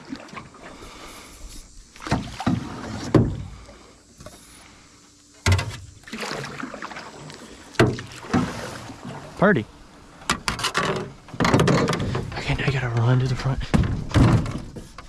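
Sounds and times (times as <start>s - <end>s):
paddle splashing in water: 0.0s - 4.5s, 5.4s - 12.4s.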